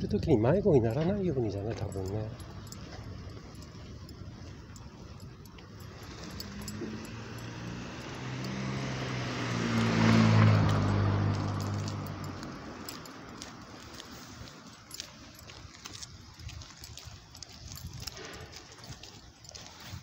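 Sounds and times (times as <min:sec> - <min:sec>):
vehicle passing by: 0:01.7 - 0:15.4.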